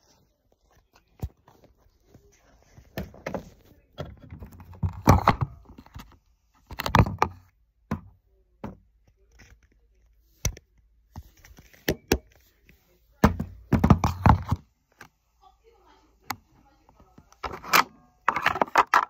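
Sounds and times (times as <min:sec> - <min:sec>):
phone handling rubbing and bumping: 0:13.3 - 0:15.1, 0:17.2 - 0:19.0.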